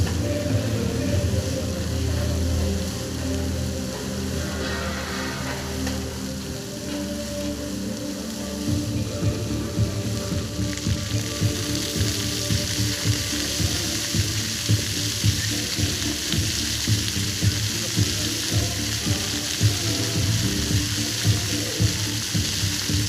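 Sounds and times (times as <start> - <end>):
low pulsing: 0.0 - 17.3
fountain jets splashing: 0.0 - 23.0.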